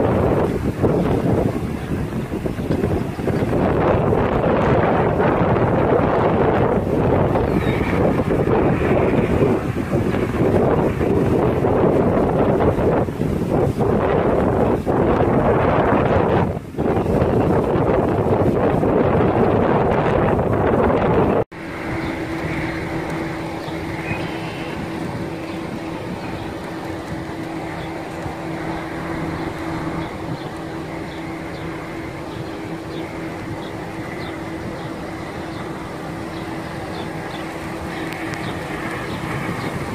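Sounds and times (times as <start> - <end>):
steady mechanical hum: 0.0 - 39.9
wind buffeting microphone: 0.0 - 39.9.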